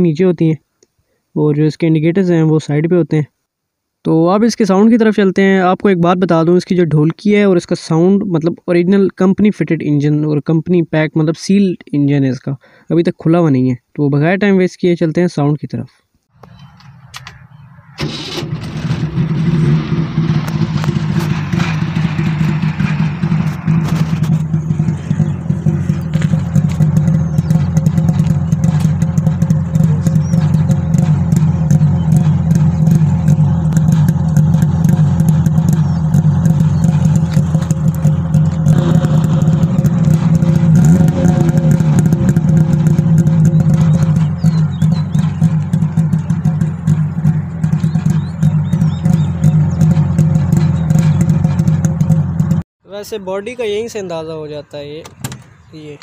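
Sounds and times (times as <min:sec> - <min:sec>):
two-stroke engine starting and idling: 0:16.4 - 0:52.6.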